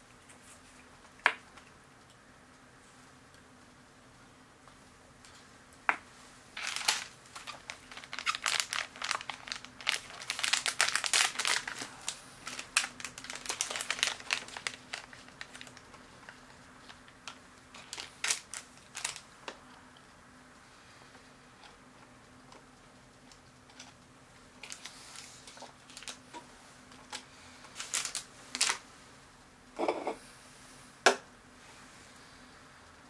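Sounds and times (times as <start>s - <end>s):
plastic snack packet crinkling: 6.6s - 19.3s, 23.3s - 26.3s, 26.9s - 28.8s.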